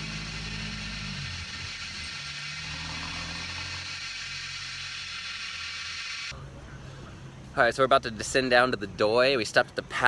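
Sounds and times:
steady high hiss: 0.0s - 6.4s
truck engine driving past: 0.0s - 7.4s.

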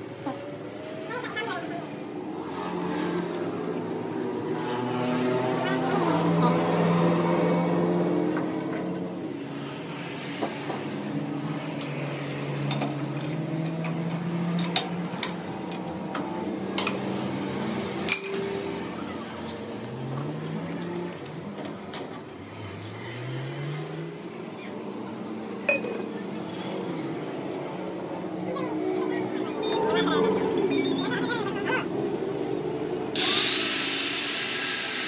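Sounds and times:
metal clinks and taps: 18.1s - 18.5s, 25.5s - 26.1s.

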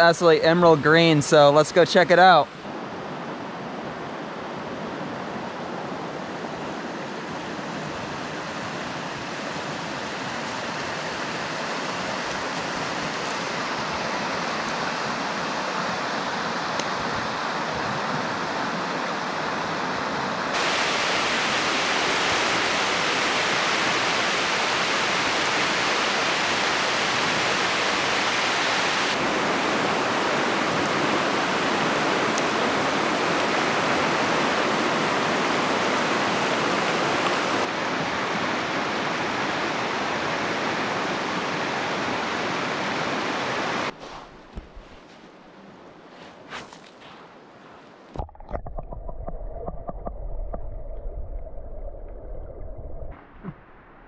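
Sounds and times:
river rushing over rocks: 4.3s - 46.5s.

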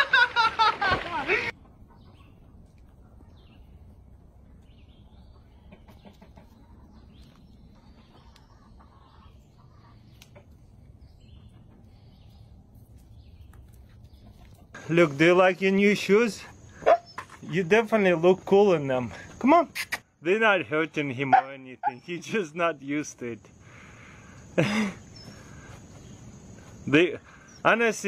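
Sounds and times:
chicken clucking faintly: 1.5s - 14.8s.

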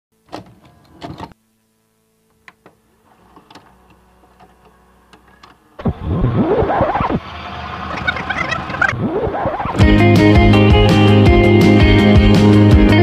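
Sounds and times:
faint steady hum: 0.2s - 7.2s
loud warbling sound: 5.8s - 9.8s.

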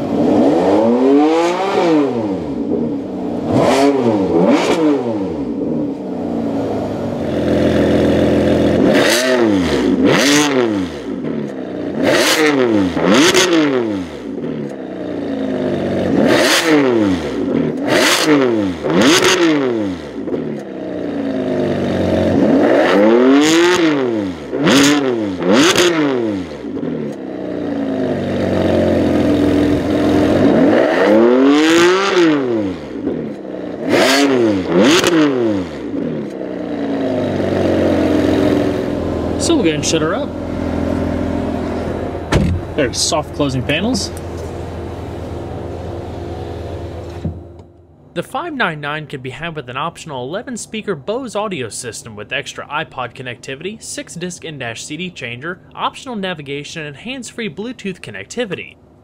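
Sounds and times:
car engine revving: 0.0s - 58.6s
car engine idling: 26.6s - 30.6s, 35.8s - 59.0s.

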